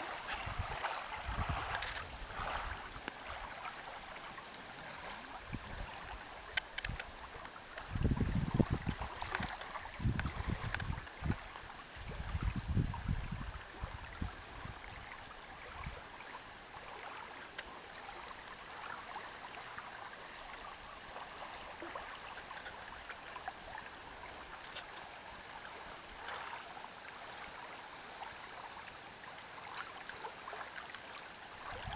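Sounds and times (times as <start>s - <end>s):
small waves lapping: 0.0s - 31.9s
wind gusting against microphone: 0.3s - 2.8s, 7.9s - 11.4s, 12.0s - 14.8s.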